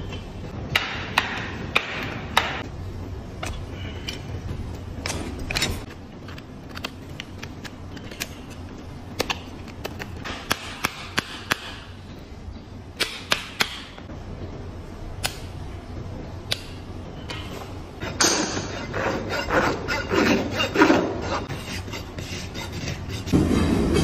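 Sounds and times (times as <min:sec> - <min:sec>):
tool scraping hoof: 0:18.0 - 0:24.0.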